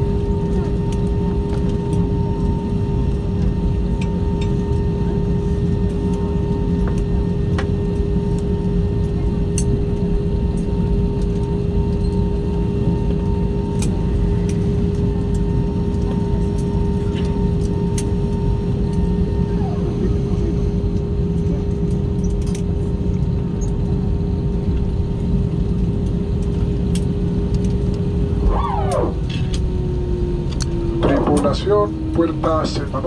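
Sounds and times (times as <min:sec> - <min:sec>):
aircraft cabin hum: 0:00.0 - 0:33.0
mid-pitched whine: 0:24.9 - 0:33.0.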